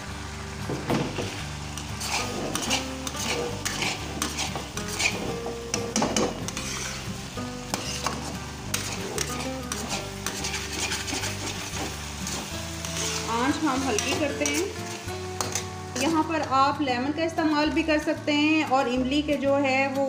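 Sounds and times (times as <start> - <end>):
daal sizzling: 0.0 - 18.2
background music: 0.0 - 20.0
steel spatula scraping pan: 1.8 - 16.2.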